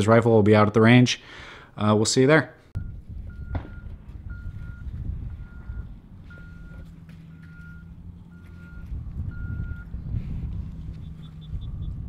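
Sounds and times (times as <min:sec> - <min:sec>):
reversing alarm beeping: 0:02.8 - 0:09.9
low rumble: 0:02.8 - 0:12.0.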